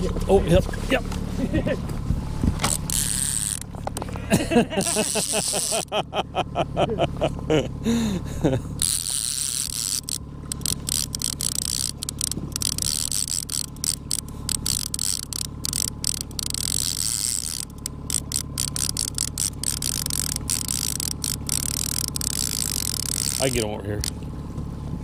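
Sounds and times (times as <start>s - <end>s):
fishing reel clicking: 2.6s - 3.9s, 4.8s - 5.9s, 8.8s - 24.2s.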